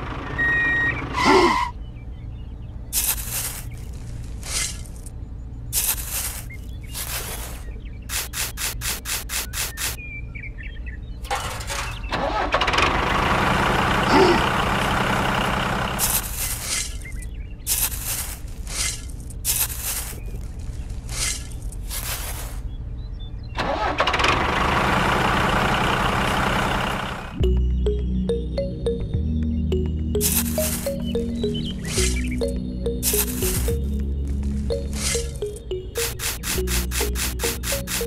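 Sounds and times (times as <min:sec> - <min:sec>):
tractor engine droning: 0:00.0 - 0:05.2, 0:11.2 - 0:18.3, 0:23.6 - 0:38.0
quick ticks: 0:36.0 - 0:38.0.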